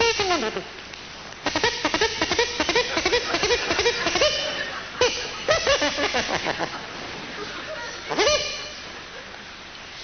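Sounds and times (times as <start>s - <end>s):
person laughing: 2.7s - 8.4s.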